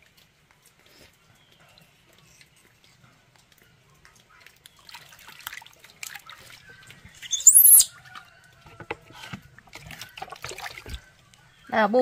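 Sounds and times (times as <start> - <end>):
water splashing and pouring: 4.2 - 7.3, 9.2 - 11.2
baby monkey squealing: 7.2 - 8.0.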